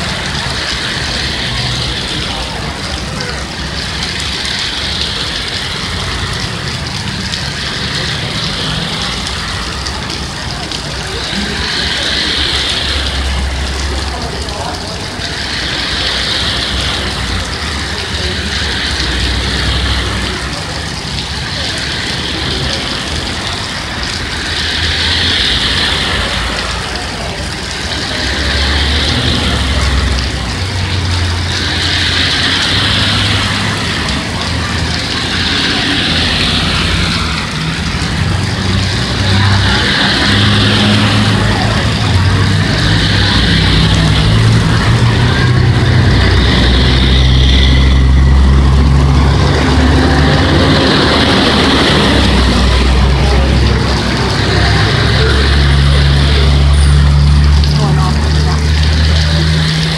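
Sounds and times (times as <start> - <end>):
tyres hissing on wet road: 0.0 - 59.9
vehicle engines humming: 0.0 - 59.9.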